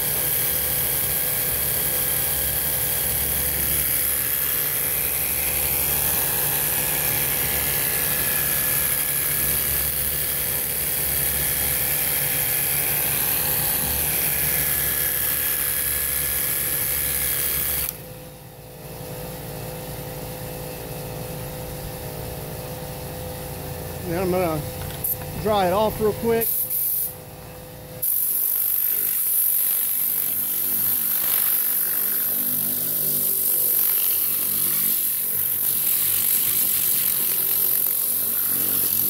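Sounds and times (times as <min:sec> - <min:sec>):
pressure washer motor whine: 0:00.0 - 0:18.1, 0:19.3 - 0:26.7
steady background hum: 0:00.0 - 0:28.8.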